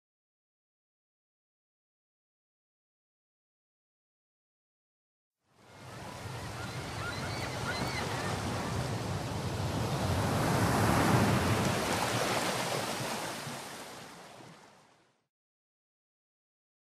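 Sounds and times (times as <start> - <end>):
surf wave: 5.6 - 14.8.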